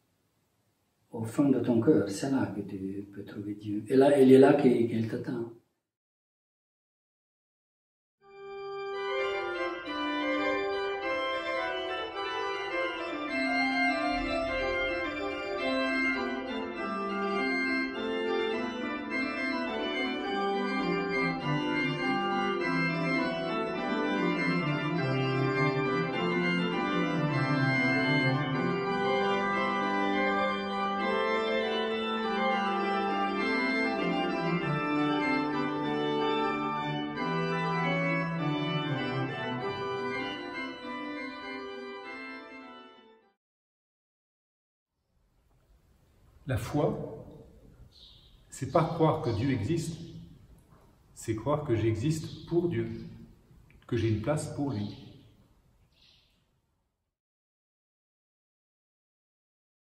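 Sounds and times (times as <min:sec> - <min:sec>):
pipe organ playing held chords: 0:08.3 - 0:43.4, 0:46.5 - 0:55.3.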